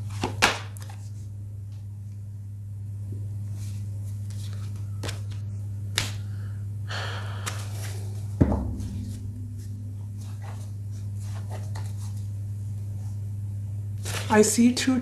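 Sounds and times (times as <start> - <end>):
steady low hum: 0.0 - 15.0
dull thump: 8.4 - 10.8.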